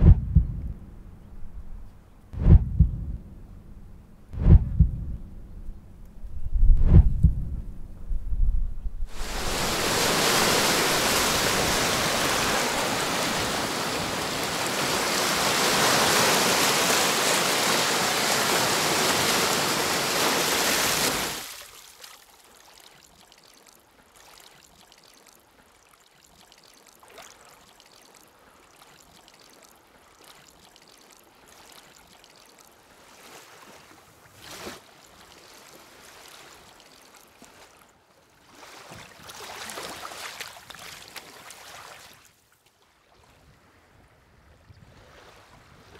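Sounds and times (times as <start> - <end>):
faint water noise: 0.0 - 45.9
water rushing and splashing: 9.1 - 37.8, 38.4 - 42.4.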